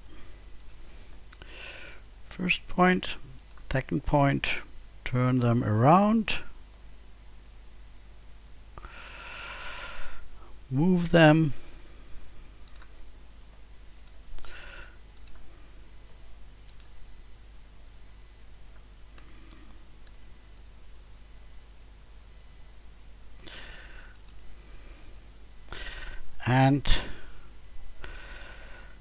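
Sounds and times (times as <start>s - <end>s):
person breathing: 0.1s - 2.0s, 8.8s - 10.3s, 14.4s - 15.7s, 23.4s - 26.3s, 26.9s - 29.0s
computer mouse clicks: 12.6s - 13.0s, 15.1s - 15.4s, 16.7s - 17.0s, 24.1s - 24.4s.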